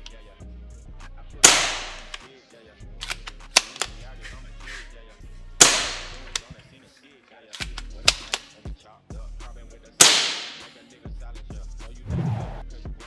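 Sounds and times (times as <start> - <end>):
airsoft rifle shot: 1.4 - 2.2, 5.6 - 6.4, 10.0 - 10.7
rifle bolt clicks: 1.4 - 2.3, 3.0 - 4.0, 5.6 - 6.6, 7.5 - 8.6, 10.0 - 10.7.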